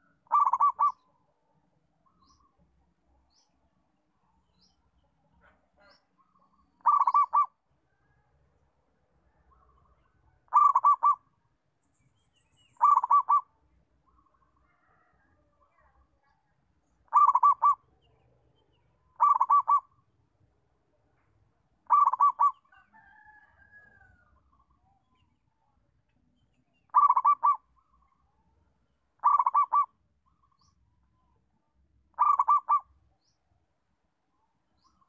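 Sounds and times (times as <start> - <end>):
dove cooing: 0.0 - 1.0, 6.8 - 7.5, 10.5 - 11.2, 12.8 - 13.5, 17.1 - 17.9, 19.2 - 19.9, 21.9 - 23.4, 26.9 - 27.6, 29.2 - 29.9, 32.2 - 32.9.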